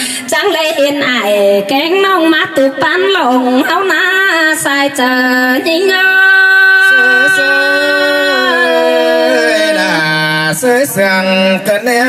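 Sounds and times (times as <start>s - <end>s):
woman singing unaccompanied: 0.8s - 9.8s.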